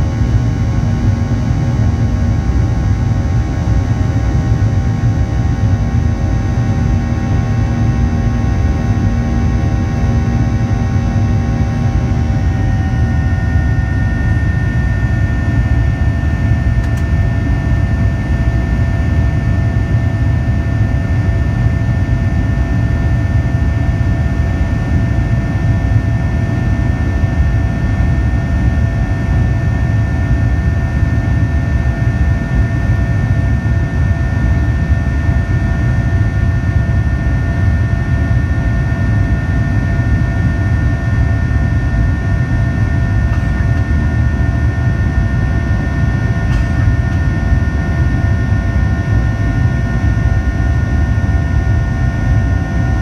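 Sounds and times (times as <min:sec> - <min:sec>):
jet engine rumble and whine: 0:00.0 - 0:53.0.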